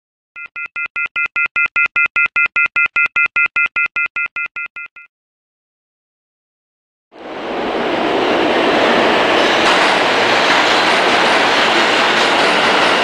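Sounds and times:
rapid electronic beeping: 0.4 - 5.1.

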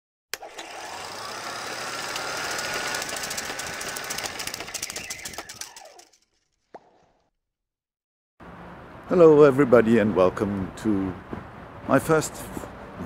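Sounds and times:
whoosh with mechanical clatter: 2.0 - 6.4.

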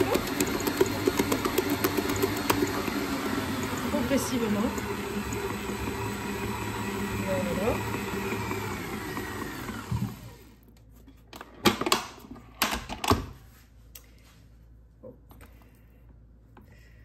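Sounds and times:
stand mixer motor winding down: 0.0 - 10.5.

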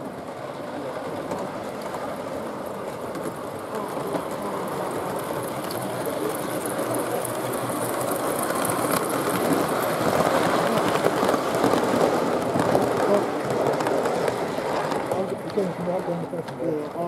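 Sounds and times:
model train wheels rumbling: 0.0 - 17.0.

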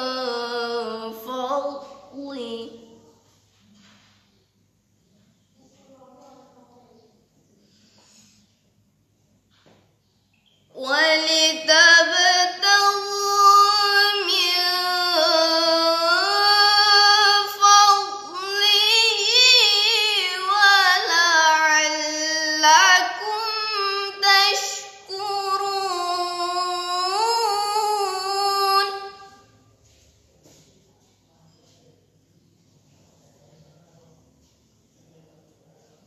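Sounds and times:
girl reciting melodically: 0.0 - 4.3, 10.6 - 29.7.

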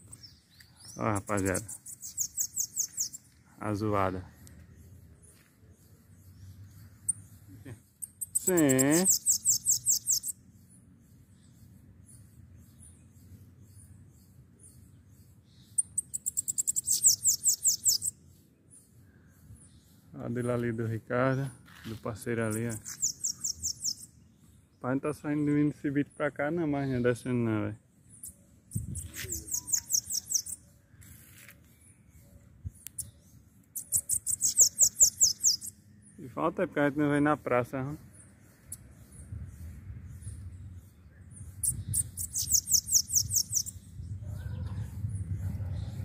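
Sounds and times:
faint high bird chirps: 0.0 - 46.0
bird singing high thin notes: 8.0 - 10.4, 28.8 - 31.2
bird singing high falling notes: 28.5 - 30.6.

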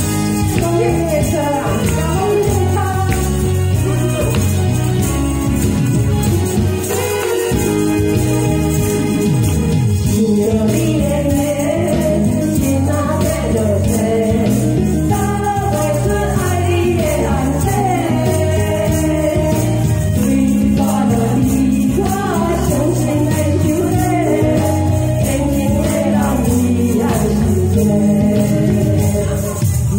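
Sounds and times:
backing track over loudspeaker: 0.0 - 29.9
tambourines jingling: 0.0 - 29.9
women singing a duet: 0.4 - 4.5, 10.1 - 29.9.

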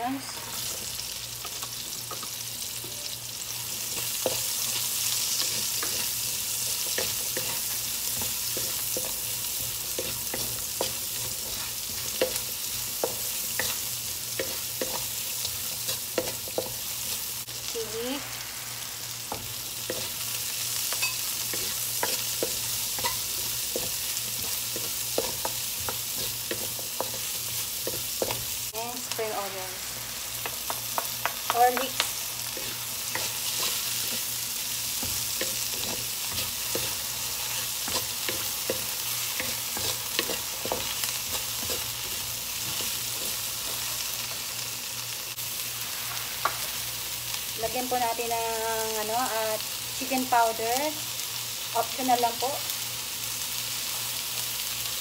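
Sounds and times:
onions sizzling in oil: 0.0 - 55.0
spatula scraping a wok: 3.9 - 17.3, 19.2 - 28.6, 32.5 - 44.0.

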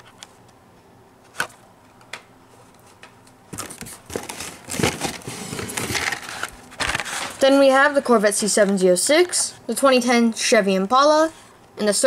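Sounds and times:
cards sliding out of cardboard case: 3.6 - 7.4.

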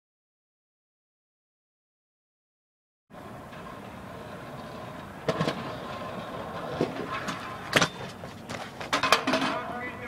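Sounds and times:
scooter wheels rolling: 3.2 - 10.0
scooter clacking on ground: 3.5 - 10.0.

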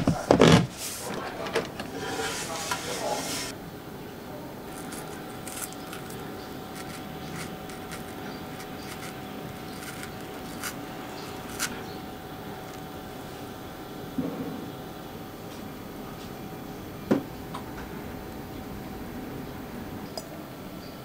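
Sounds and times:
knife cutting strawberry: 4.7 - 13.0
small clicks and ticks: 6.8 - 10.8.

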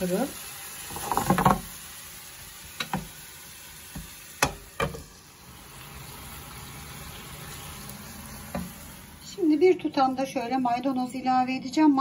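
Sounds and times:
vegetables sizzling in oil: 0.0 - 12.0
wooden spoon knocking on pan: 1.0 - 1.7, 2.8 - 3.1, 3.9 - 5.1.

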